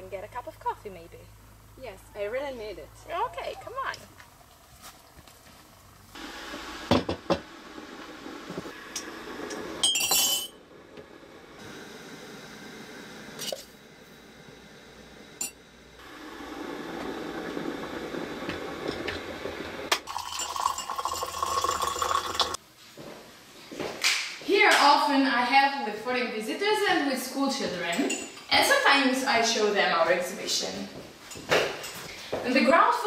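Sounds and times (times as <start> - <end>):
spoons clinking against mugs: 9.8 - 10.6
water pouring into mugs: 16.0 - 22.6.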